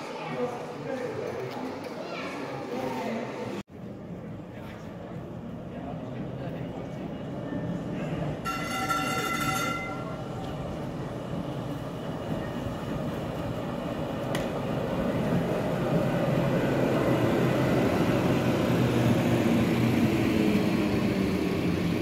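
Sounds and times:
tram wheels rumbling on rails: 0:05.0 - 0:22.0.

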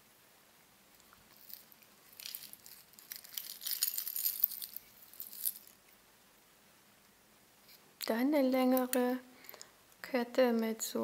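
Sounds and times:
jewellery jingling and clinking: 0:01.3 - 0:05.8.

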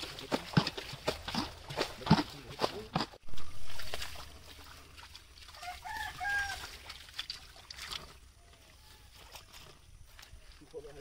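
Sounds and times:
rooster crowing: 0:05.6 - 0:06.8.

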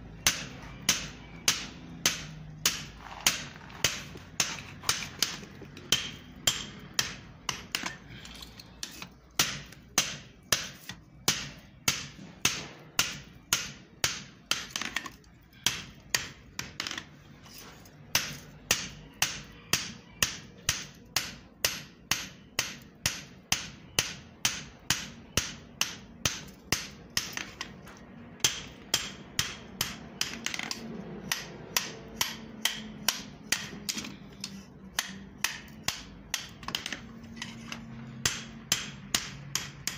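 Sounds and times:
hammer striking hot metal on anvil: 0:03.9 - 0:08.0, 0:18.1 - 0:27.5, 0:28.4 - 0:36.7, 0:38.2 - 0:39.9.

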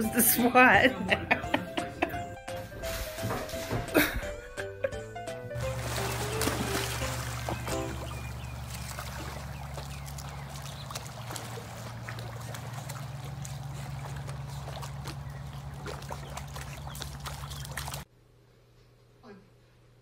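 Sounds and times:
pool water splashing: 0:00.7 - 0:04.6, 0:05.2 - 0:18.1
steady low hum: 0:05.6 - 0:20.0.

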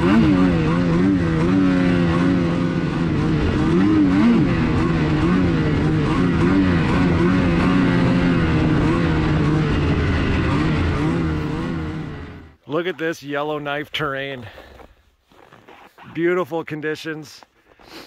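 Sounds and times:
snowmobile engine revving: 0:00.0 - 0:12.6.

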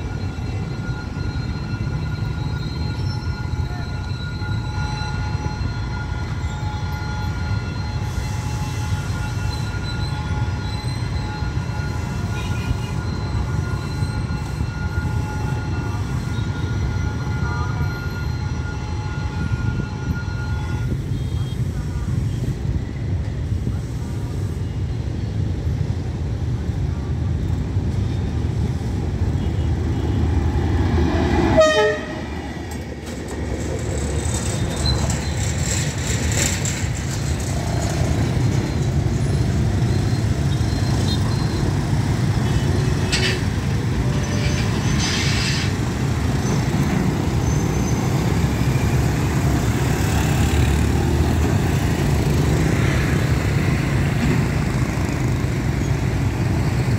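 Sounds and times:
motorbike engines: 0:00.0 - 0:56.9
train horn toot: 0:01.8 - 0:21.6, 0:31.3 - 0:32.5.

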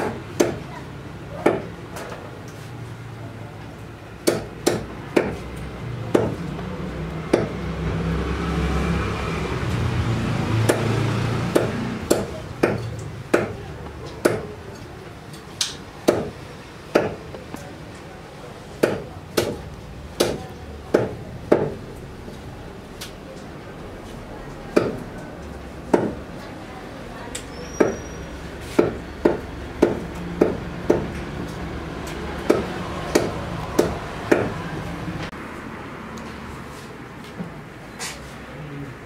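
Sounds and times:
cleaver chopping meat: 0:01.4 - 0:01.7, 0:04.2 - 0:05.5, 0:06.1 - 0:06.6, 0:07.3 - 0:07.6, 0:10.6 - 0:13.6, 0:14.2 - 0:14.5, 0:15.6 - 0:17.2, 0:18.8 - 0:21.8, 0:24.8 - 0:25.0, 0:25.9 - 0:26.2, 0:28.7 - 0:31.2, 0:32.1 - 0:34.6.

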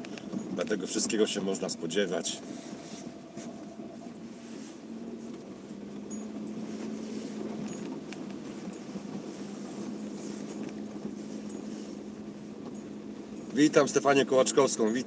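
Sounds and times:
light ticks: 0:00.0 - 0:00.8, 0:06.0 - 0:09.3
car engine and road hum: 0:00.0 - 0:15.0.

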